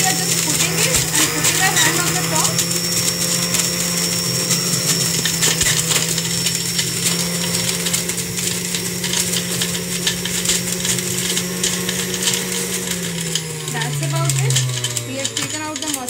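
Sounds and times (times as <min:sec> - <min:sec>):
juicer motor hum: 0:00.0 - 0:16.0
pulp clicking against spinning basket: 0:13.0 - 0:16.0.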